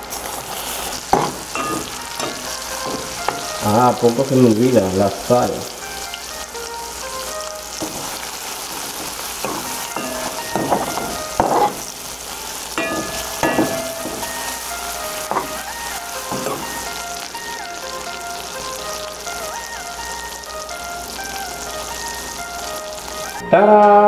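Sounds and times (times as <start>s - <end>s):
food sizzling in hot oil: 0.0s - 23.5s
metal spoon scraping a pan: 0.2s - 3.6s, 7.8s - 11.9s, 12.8s - 17.0s.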